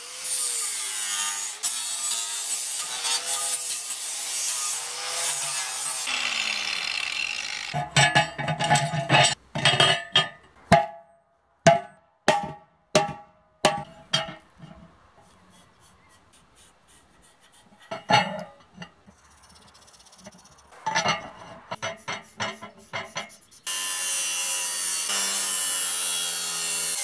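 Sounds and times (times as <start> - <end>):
angle grinder cutting steel: 0.0 - 9.4, 20.2 - 27.0
ringing metal knocks: 7.7 - 11.1, 11.7 - 14.8.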